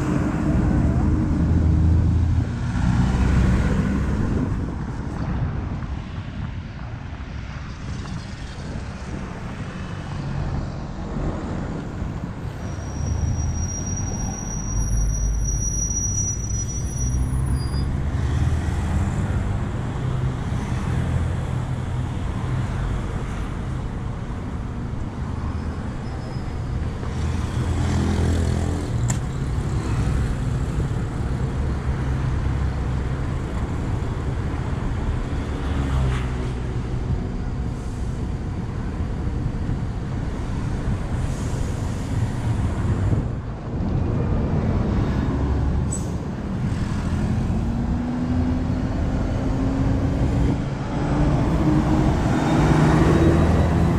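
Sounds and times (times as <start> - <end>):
bus engines rumbling: 0.0 - 53.9
road traffic: 0.0 - 53.9.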